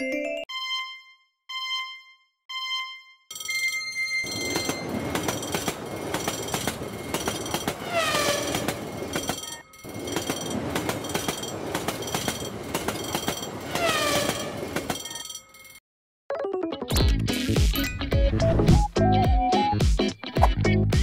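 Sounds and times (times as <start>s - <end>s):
bell-like dings: 0.0s - 13.8s, 14.4s - 15.8s
wheel clatter on rails: 4.2s - 15.8s
train rumbling past: 4.3s - 15.1s.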